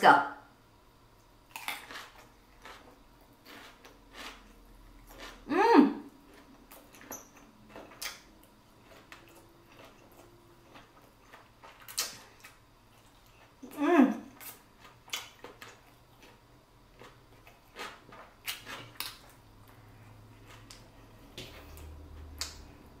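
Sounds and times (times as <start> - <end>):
chewing food: 1.5 - 5.5, 6.1 - 22.9
person humming: 5.5 - 6.1.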